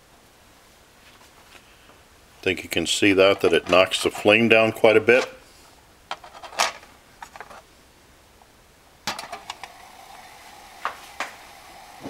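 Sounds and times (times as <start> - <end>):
metal knocks of pot set down: 9.1 - 9.4.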